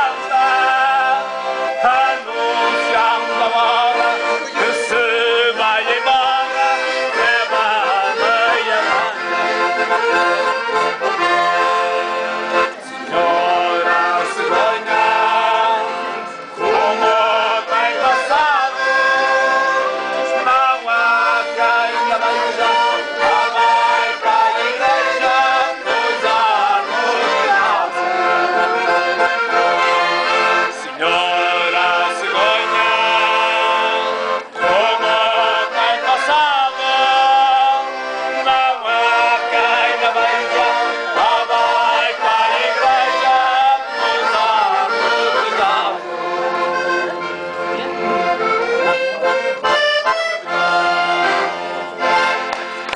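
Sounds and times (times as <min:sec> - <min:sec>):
man singing: 0:00.0 - 0:09.4, 0:13.1 - 0:16.0, 0:16.6 - 0:19.5, 0:20.2 - 0:29.1, 0:30.6 - 0:46.1
accordion playing: 0:00.0 - 0:52.9.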